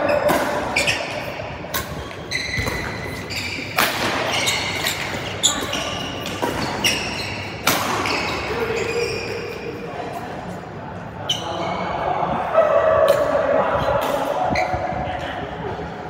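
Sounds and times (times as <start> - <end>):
rackets hitting shuttlecock: 0.1 - 8.6.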